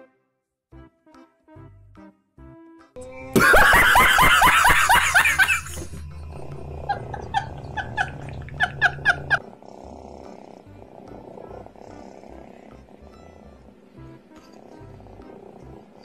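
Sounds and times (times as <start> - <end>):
low hum: 3.0 - 9.4
man laughing in bursts: 3.4 - 6.0, 6.9 - 9.4
people laughing hard: 3.4 - 6.1, 6.8 - 9.4.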